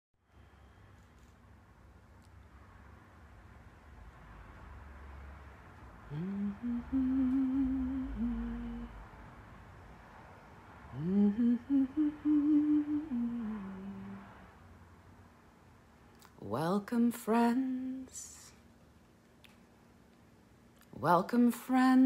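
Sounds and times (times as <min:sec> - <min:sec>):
woman humming: 0:06.1 - 0:09.0, 0:10.9 - 0:14.3.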